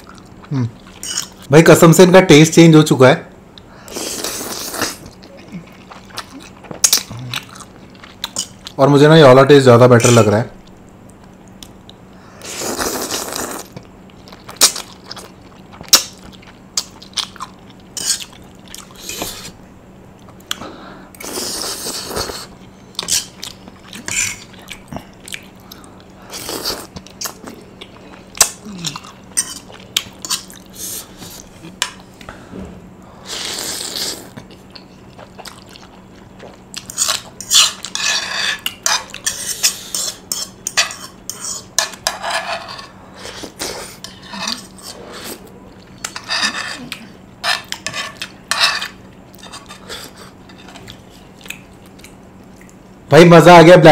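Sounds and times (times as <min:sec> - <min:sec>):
chewing: 0:05.0 - 0:08.8, 0:21.2 - 0:32.2, 0:33.9 - 0:38.0, 0:43.3 - 0:52.9
utensils scraping a bowl: 0:37.0 - 0:50.8.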